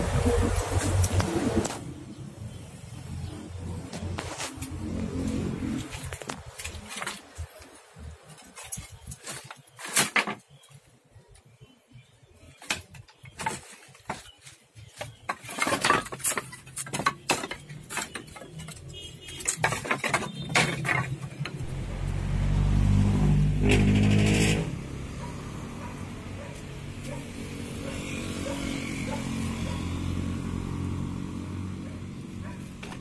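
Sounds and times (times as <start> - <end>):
scrap wood clattering: 5.7 - 10.6, 12.6 - 21.7, 23.6 - 24.8.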